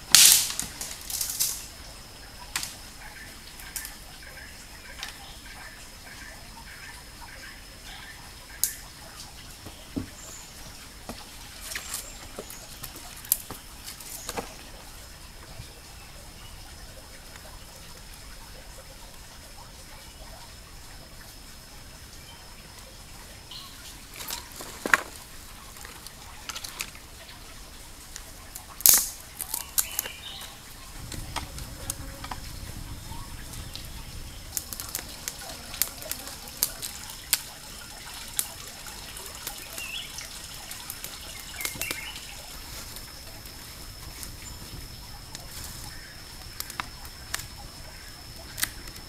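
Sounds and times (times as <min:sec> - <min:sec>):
campfire crackling and snapping: 0:00.0 - 0:01.8, 0:02.5 - 0:02.8, 0:08.6 - 0:15.5, 0:28.1 - 0:49.0
faint high whine: 0:00.0 - 0:49.0.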